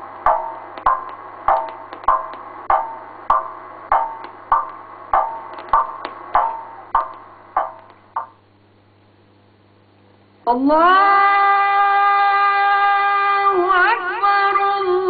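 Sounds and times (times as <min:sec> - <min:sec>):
low steady hum: 0:00.0 - 0:15.0
ringing wood block knocks: 0:00.3 - 0:08.4.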